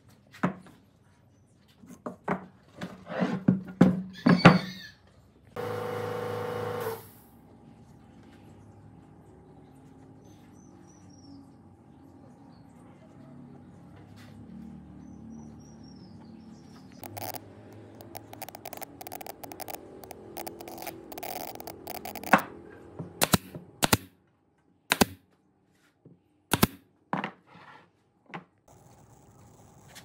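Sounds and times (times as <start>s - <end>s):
nail gun firing: 23.2s - 24.2s, 24.9s - 25.2s, 26.5s - 26.8s.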